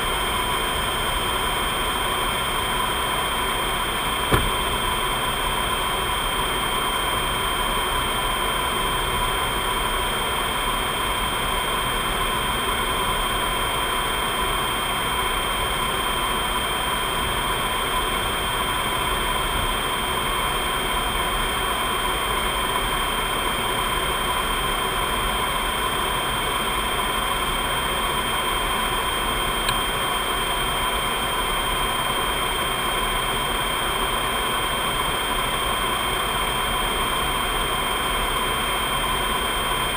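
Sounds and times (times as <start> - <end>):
airflow and engine rush: 0.0 - 7.5
steady high whines: 0.0 - 10.4.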